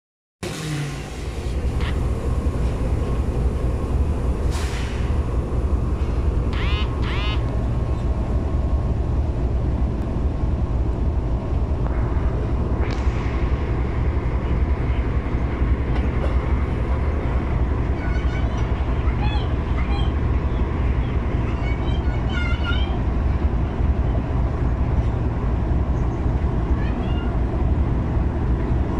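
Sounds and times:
locomotive engine rumbling: 0.4s - 28.9s
short hiss: 4.5s - 5.1s.

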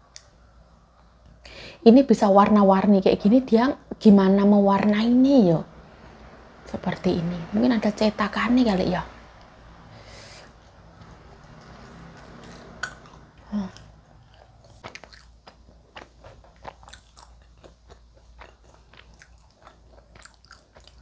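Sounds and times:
close-up chewing and crunching: 11.4s - 21.0s.

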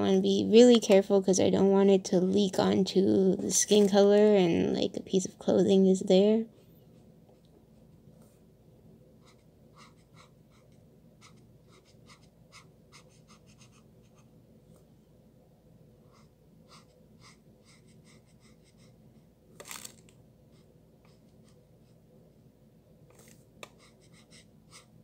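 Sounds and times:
low steady hum: 0.0s - 25.0s
marker rubbing on paper: 23.2s - 24.9s.

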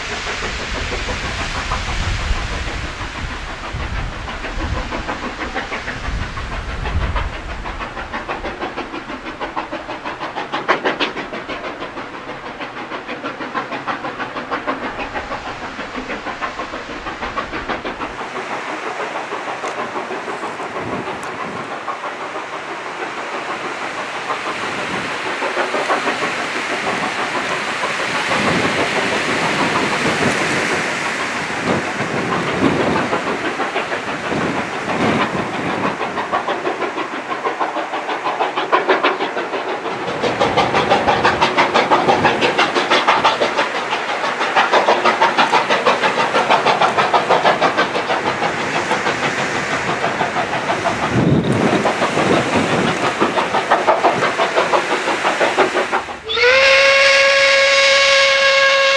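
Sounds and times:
steam locomotive hissing: 0.0s - 58.9s
train cars clattering on rails: 0.0s - 58.9s.

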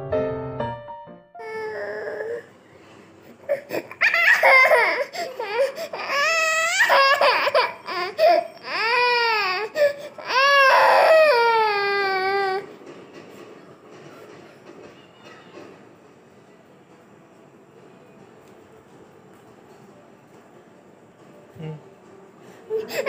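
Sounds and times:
toddler crying: 1.4s - 2.5s, 3.4s - 12.7s.

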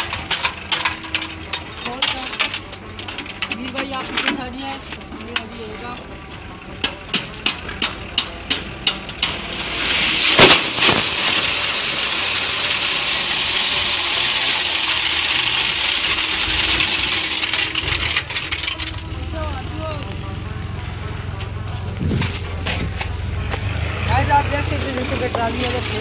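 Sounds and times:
chain clanking: 0.0s - 9.6s, 12.6s - 19.6s, 25.3s - 26.0s
engine running: 0.0s - 26.0s
crushed stone pouring out: 9.5s - 19.4s.

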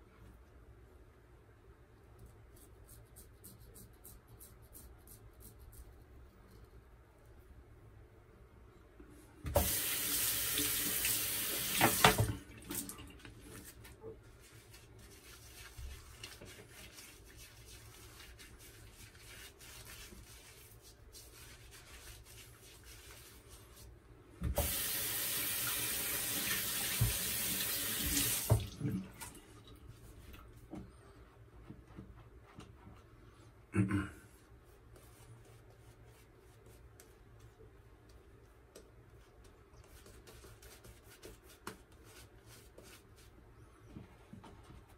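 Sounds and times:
water splashing into sink: 9.5s - 13.2s, 24.4s - 29.5s.

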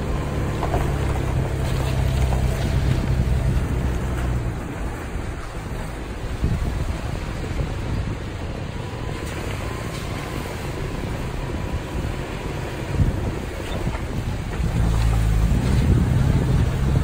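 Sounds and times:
vehicle jolt: 0.0s - 8.1s, 12.8s - 17.0s
vehicle engine and tyres rumbling: 0.0s - 17.0s.

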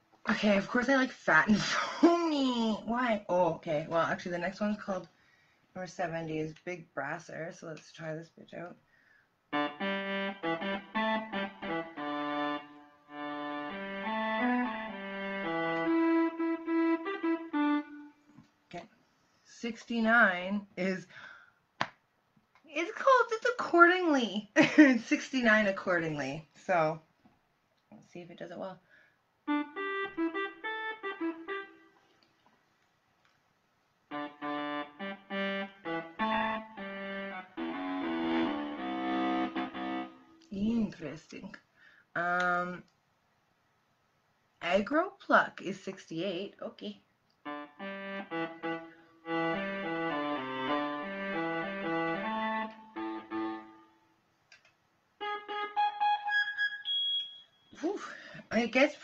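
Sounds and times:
electronic wind instrument notes: 9.5s - 18.2s, 29.5s - 32.0s, 34.1s - 40.4s, 47.4s - 54.0s, 55.2s - 57.6s
plucked synth notes: 34.1s - 40.3s.

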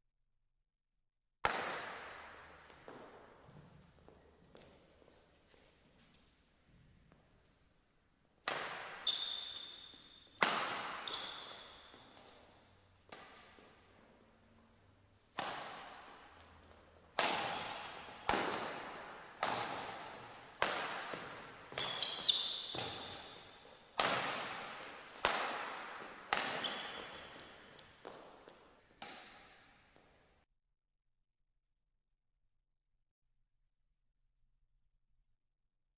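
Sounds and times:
shoes squeaking on court floor: 1.5s - 6.4s, 8.5s - 30.2s
badminton racket hitting shuttlecock: 8.4s - 14.0s, 15.2s - 29.8s.

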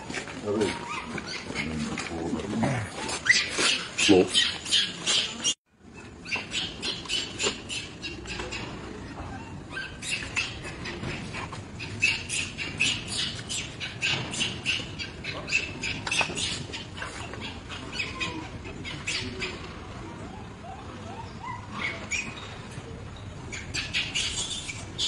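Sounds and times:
baby monkey crying high squeaks: 3.2s - 5.6s.

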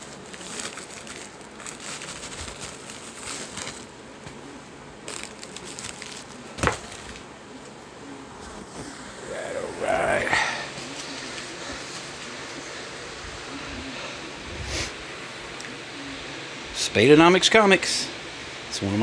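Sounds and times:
plastic packaging crinkling: 0.0s - 4.0s, 5.0s - 7.3s.

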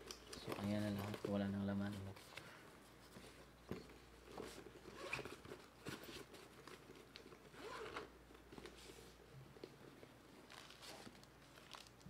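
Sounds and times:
bag zipper being pulled: 7.6s - 8.1s.

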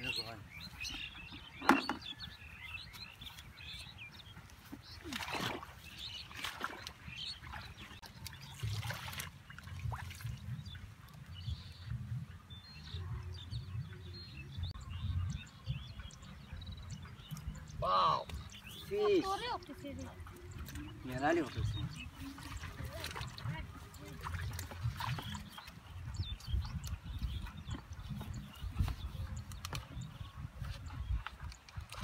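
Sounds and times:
birds chirping: 0.0s - 32.0s
water trickling: 17.4s - 27.5s.

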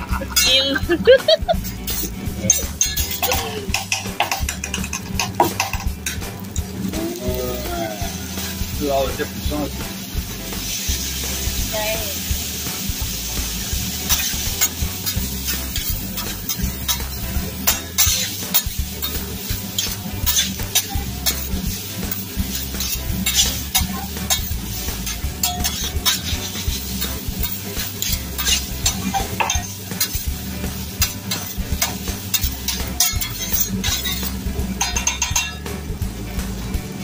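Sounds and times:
rice sizzling on a griddle: 1.3s - 37.0s
metal spatula scraping steel: 1.6s - 6.7s, 13.7s - 35.6s.

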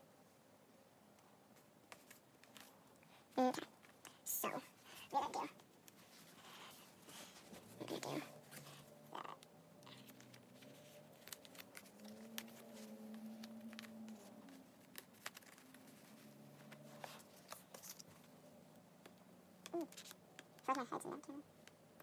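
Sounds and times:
small clicks of cards handled: 9.4s - 15.9s, 19.0s - 20.8s
plastic sleeve crinkling: 9.9s - 18.3s.

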